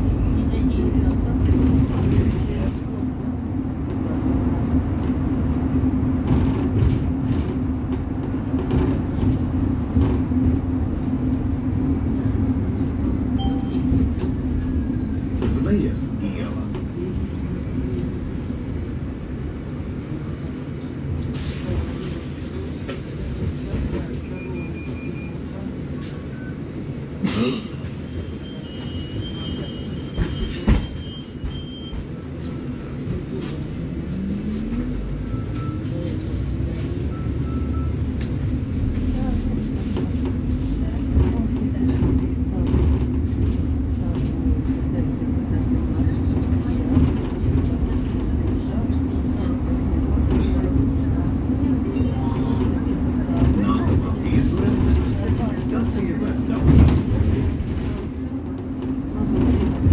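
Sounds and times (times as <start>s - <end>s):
road rumble: 0.0s - 24.4s, 25.3s - 59.9s
bus engine drone: 0.0s - 59.9s
thin high beep: 51.9s - 53.0s.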